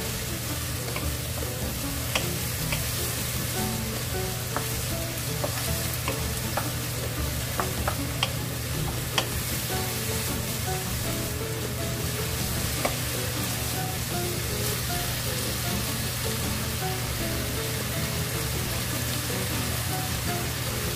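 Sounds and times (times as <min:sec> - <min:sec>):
food sizzling in frying pan: 0:00.0 - 0:20.9
spatula clicking against pan: 0:00.5 - 0:14.2.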